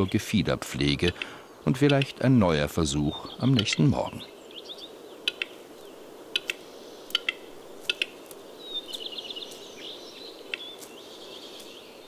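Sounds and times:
bird dry clicks: 1.1s - 2.2s, 5.2s - 5.6s, 6.3s - 9.7s, 10.5s - 11.0s.

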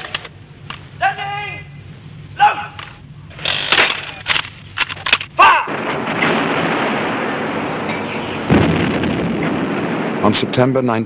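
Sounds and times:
gunfire and artillery: 5.4s - 11.0s.

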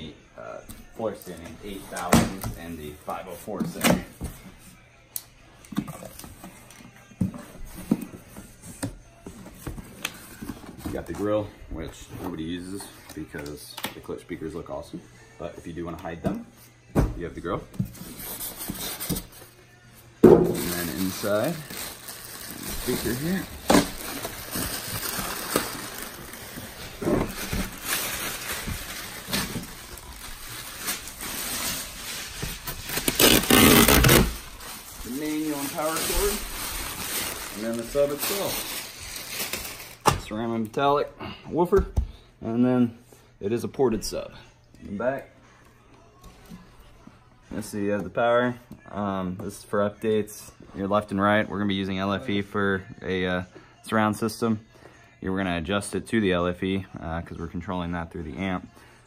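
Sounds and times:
plastic wrapping crinkling: 20.5s - 40.2s.

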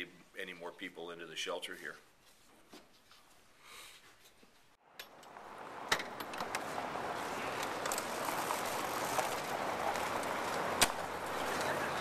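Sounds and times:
traffic noise: 4.8s - 12.0s.

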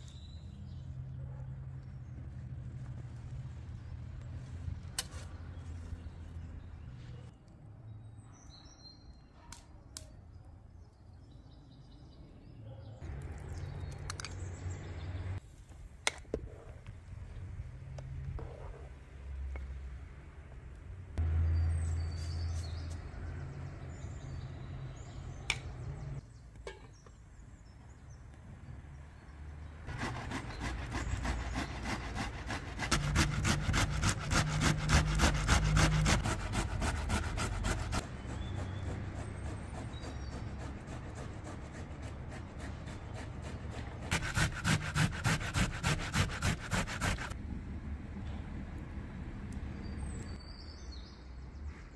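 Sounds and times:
vegetables scraped on a grater: 29.9s - 47.4s.

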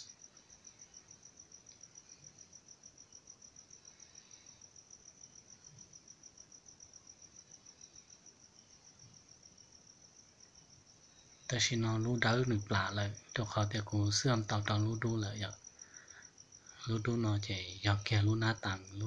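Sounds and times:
faint cricket chirping: 0.0s - 19.0s.

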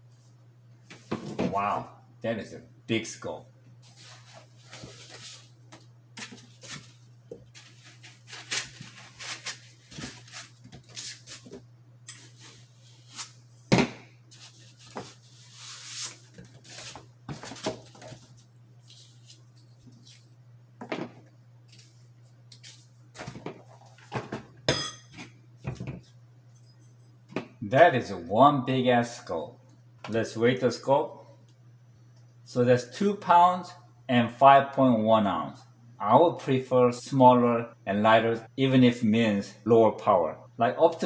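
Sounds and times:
foam and cardboard rustling: 3.8s - 5.5s, 6.2s - 11.5s.

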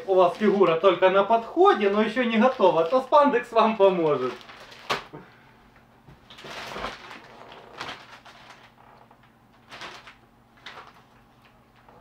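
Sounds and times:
packages rustling in cardboard box: 4.0s - 5.1s, 6.3s - 8.8s, 9.6s - 11.1s.

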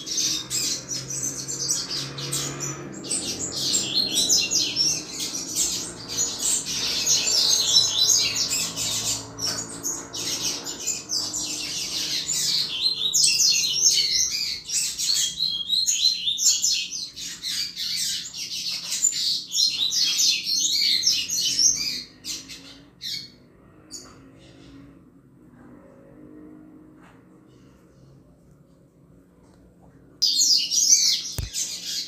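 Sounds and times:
bird singing high chirps: 0.0s - 23.4s, 30.2s - 32.0s.

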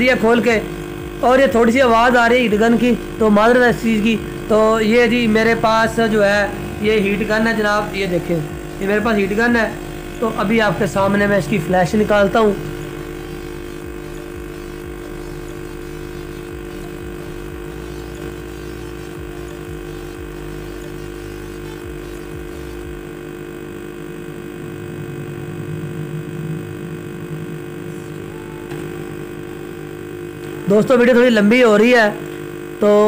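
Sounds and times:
heat gun fan hum: 0.0s - 33.0s
deep rumble: 24.2s - 29.6s.

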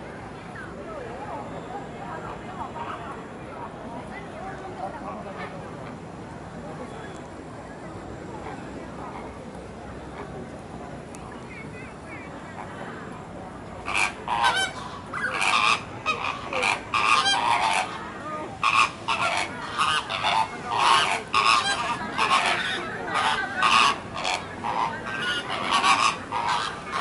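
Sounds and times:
flamingos honking: 13.8s - 27.0s.

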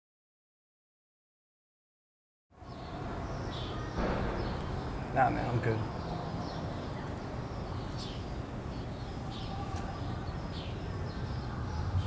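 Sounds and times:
birds chirping: 2.6s - 12.0s.

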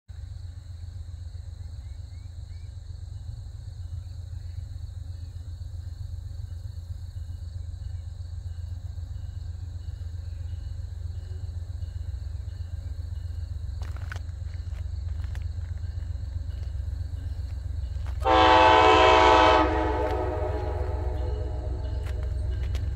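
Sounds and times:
crickets chirring: 0.1s - 22.9s
low rumble: 11.9s - 22.9s.

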